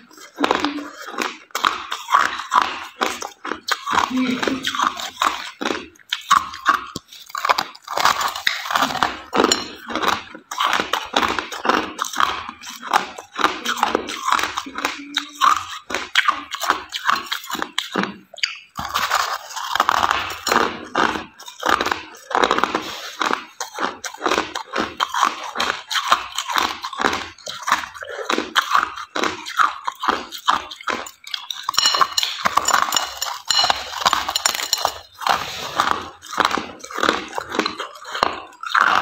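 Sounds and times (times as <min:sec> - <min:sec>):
crushed ice being chewed: 0:00.0 - 0:39.0.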